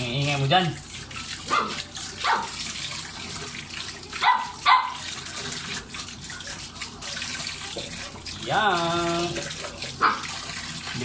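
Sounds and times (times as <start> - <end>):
tap water running: 0.0 - 11.0
dog barking: 1.4 - 2.6, 4.2 - 5.1, 10.0 - 10.4.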